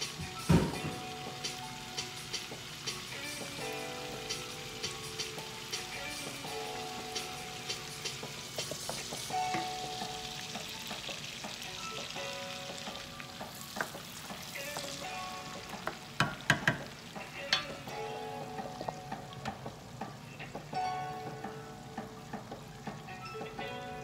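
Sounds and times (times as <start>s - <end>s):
onion sizzling in butter: 0.0s - 20.8s.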